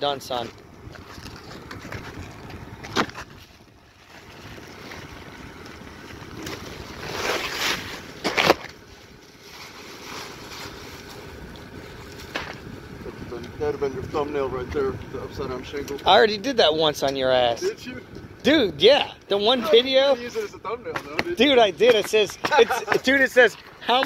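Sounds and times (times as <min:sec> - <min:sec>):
wind blowing across microphone: 0:09.8 - 0:23.2.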